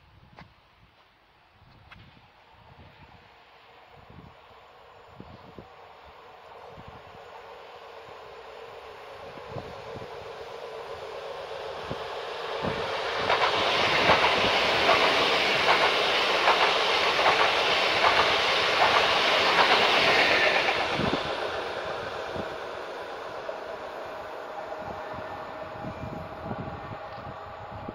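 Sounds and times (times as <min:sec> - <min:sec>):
train passing: 0:02.1 - 0:27.9
wheels clicking over rail joints: 0:12.6 - 0:21.3.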